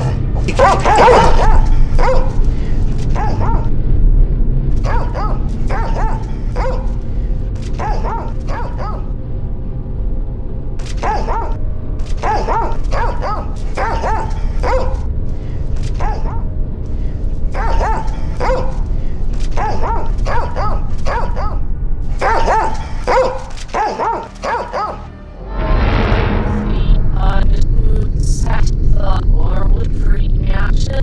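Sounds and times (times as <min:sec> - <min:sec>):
low music drone: 0:00.0 - 0:31.0
dog barking: 0:00.5 - 0:02.4, 0:03.1 - 0:03.7, 0:04.8 - 0:07.0, 0:07.8 - 0:09.1, 0:11.0 - 0:11.6, 0:12.2 - 0:15.1, 0:15.9 - 0:16.5, 0:17.5 - 0:18.8, 0:19.5 - 0:21.6, 0:22.2 - 0:25.0
loud rushing noise: 0:25.2 - 0:28.1.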